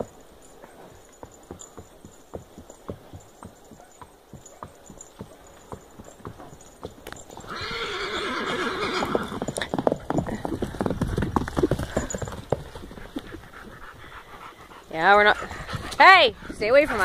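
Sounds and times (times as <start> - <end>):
hooves on dirt trail: 0.0 - 17.0
horse whinnying: 7.4 - 10.5.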